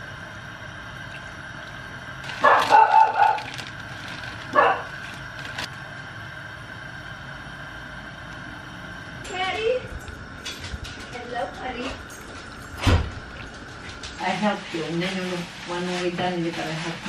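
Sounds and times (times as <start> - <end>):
plastic bag crinkling: 2.2 - 5.8
dog barking: 2.3 - 3.6, 4.5 - 5.0.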